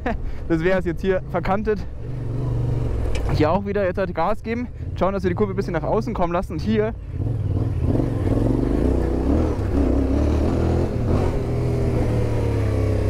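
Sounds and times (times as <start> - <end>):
motorcycle engine revving: 2.0 - 3.5, 6.9 - 13.0.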